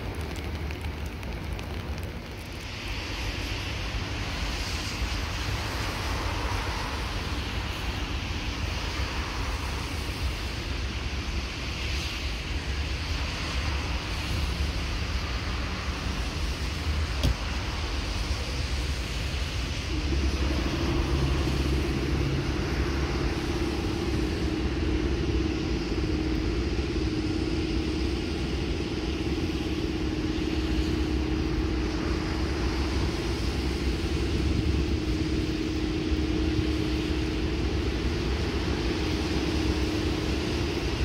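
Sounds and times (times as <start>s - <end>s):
locomotive engine hum and rumble: 0.0s - 41.0s.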